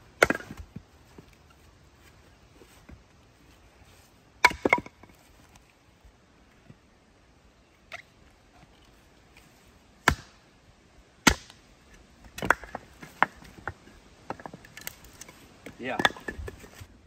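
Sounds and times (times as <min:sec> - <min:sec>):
axe chopping wood: 0:00.2 - 0:00.7, 0:04.4 - 0:05.0, 0:10.0 - 0:10.4, 0:11.2 - 0:11.6, 0:12.3 - 0:13.7, 0:15.8 - 0:16.5.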